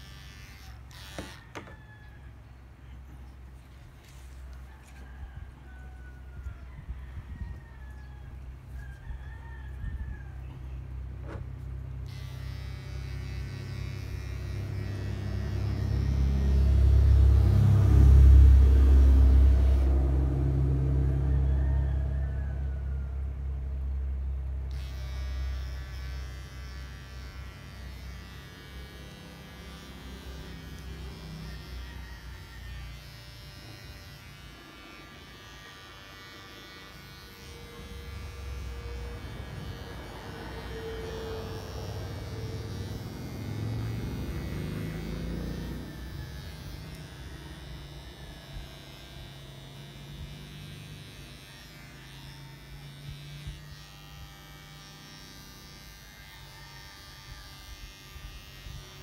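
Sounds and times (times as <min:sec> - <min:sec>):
electric clippers buzzing: 0:00.0 - 0:01.8, 0:10.4 - 0:21.3, 0:24.5 - 0:59.0.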